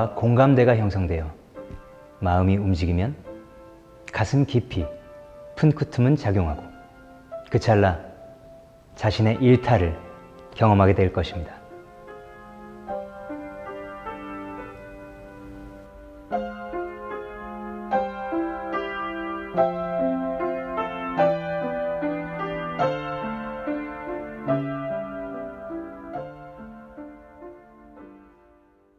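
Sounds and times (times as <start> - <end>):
solo piano music: 0.0 - 28.9.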